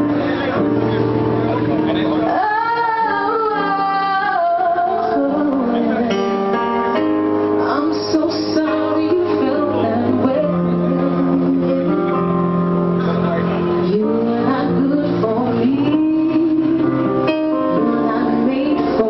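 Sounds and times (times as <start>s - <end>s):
woman singing into a microphone: 2.2s - 6.4s, 7.5s - 12.7s, 13.8s - 19.0s.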